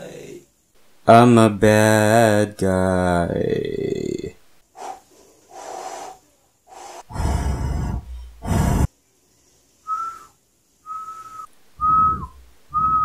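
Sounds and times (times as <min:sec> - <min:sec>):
breathy rushes of noise: 0:04.8 - 0:08.9
man whistling short notes: 0:09.9 - 0:13.0.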